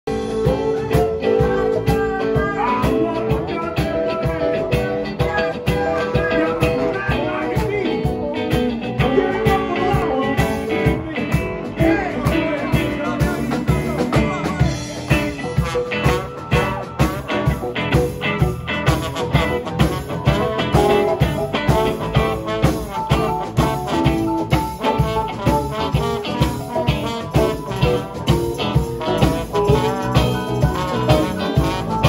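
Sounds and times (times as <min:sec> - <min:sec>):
drum kit beat: 0:00.1 - 0:32.0
electric guitars: 0:00.1 - 0:32.0
trombone: 0:09.0 - 0:32.0.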